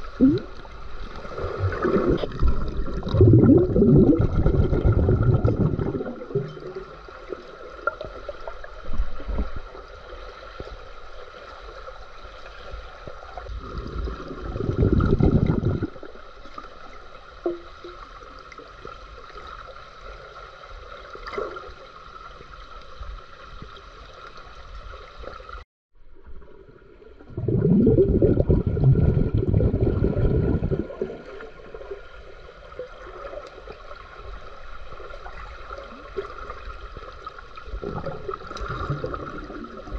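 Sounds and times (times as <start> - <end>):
underwater bubbling rushes: 0.0 - 10.6, 13.2 - 18.1, 26.4 - 39.9
underwater hum: 0.0 - 39.9.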